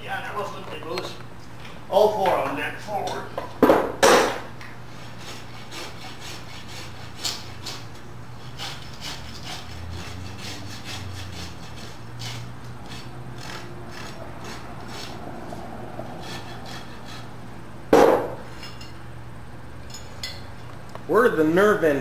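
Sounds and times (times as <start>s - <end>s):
rasp scraping hoof: 5.0s - 17.4s.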